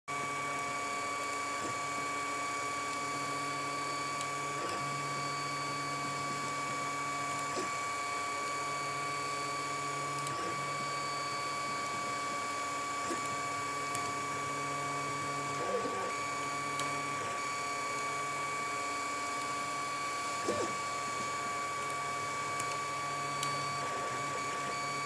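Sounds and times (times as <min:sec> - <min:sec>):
printer motors whining: 0:00.1 - 0:25.0.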